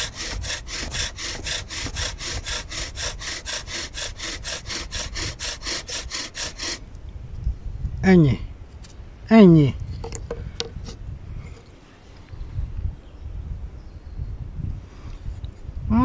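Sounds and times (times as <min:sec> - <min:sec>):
bow drill spindle grinding wood: 0:00.0 - 0:06.8.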